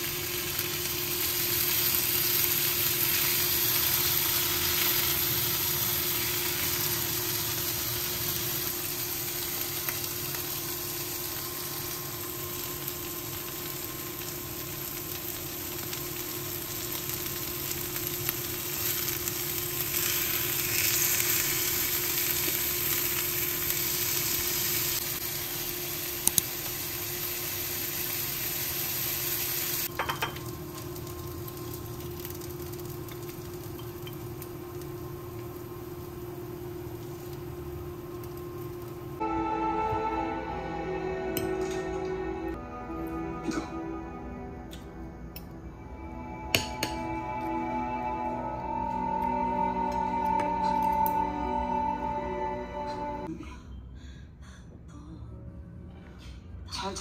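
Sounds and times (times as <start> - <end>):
fish sizzling in oil: 0.0 - 39.2.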